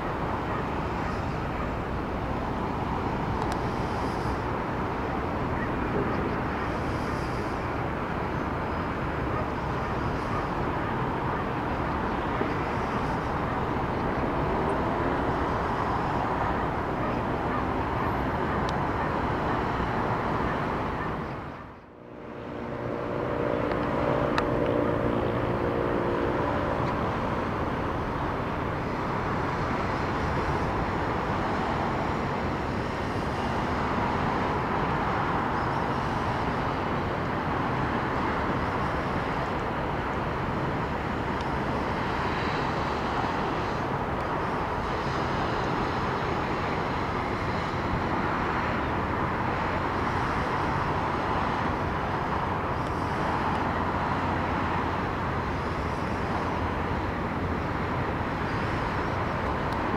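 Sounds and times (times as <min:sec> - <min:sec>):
distant city traffic hum: 0:00.0 - 0:59.9
low drone: 0:20.8 - 0:34.8.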